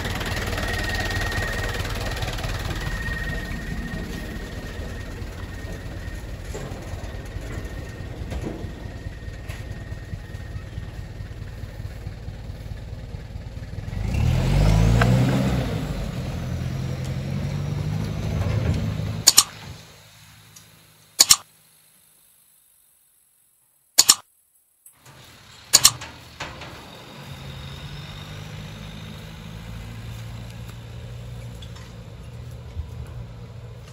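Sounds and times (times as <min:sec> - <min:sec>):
truck engine revving: 0:00.0 - 0:19.8, 0:25.7 - 0:32.1
sharp clicks: 0:19.2 - 0:19.6, 0:21.2 - 0:21.5, 0:24.0 - 0:24.3, 0:25.7 - 0:26.1.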